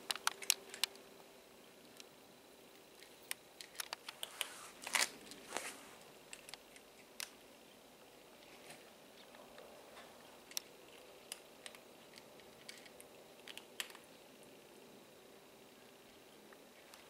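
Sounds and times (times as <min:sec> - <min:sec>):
cat crunching dry kibble: 0:03.0 - 0:07.4, 0:08.3 - 0:14.1.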